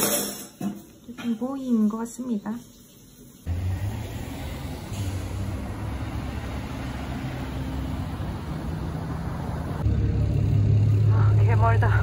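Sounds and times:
cars driving past: 3.4s - 12.0s.

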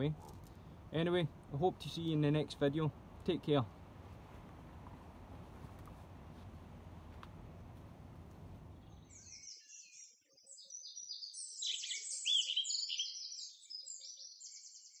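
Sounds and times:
low outdoor hiss: 0.0s - 9.1s
songbirds chirping and trilling: 8.5s - 15.0s.

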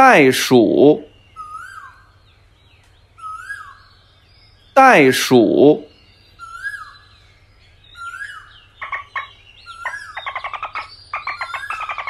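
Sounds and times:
bird-like animal chirps: 7.9s - 12.0s.

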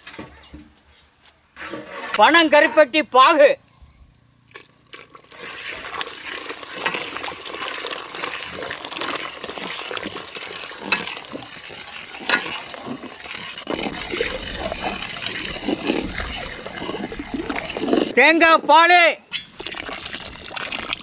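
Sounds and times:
metal ladle stirring and sloshing: 1.6s - 2.3s, 4.5s - 18.2s, 19.2s - 21.0s
thick syrup pouring: 4.5s - 18.2s, 19.5s - 21.0s.

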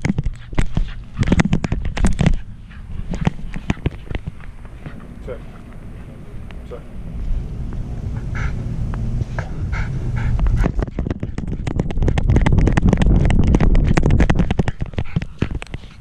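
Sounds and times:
low rubbing rumble: 0.0s - 16.0s
dog running strides clatter: 10.6s - 16.0s.

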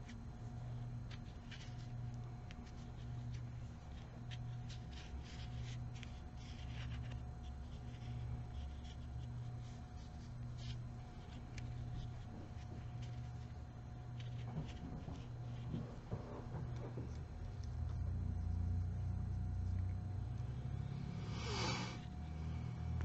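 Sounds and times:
low hum: 0.0s - 23.0s
crochet hook scratching yarn: 1.0s - 15.9s.

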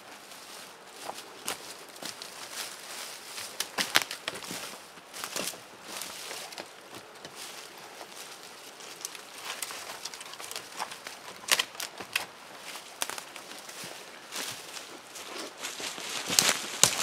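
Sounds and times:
dry leaves crackling underfoot: 0.0s - 17.0s
sticks being handled: 0.0s - 17.0s.

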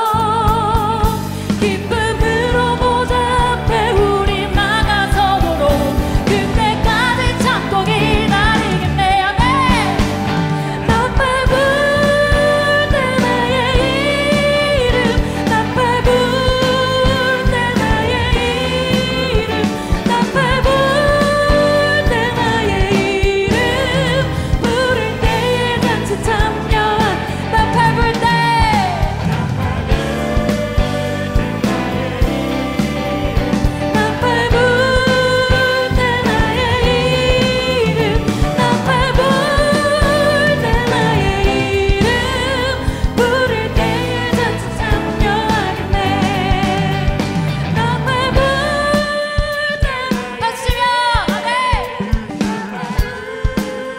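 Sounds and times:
bass guitar: 0.0s - 53.9s
keyboard: 0.0s - 53.9s
steady drum beat: 0.0s - 53.9s
vocal group singing: 0.0s - 53.9s
worship band playing: 0.0s - 53.9s.

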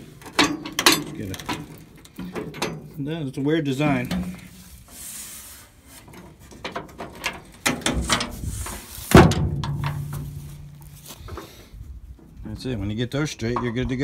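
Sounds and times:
metal chains clinking and rattling: 0.3s - 2.8s
tailgate shutting with metal clank: 9.1s - 10.2s.

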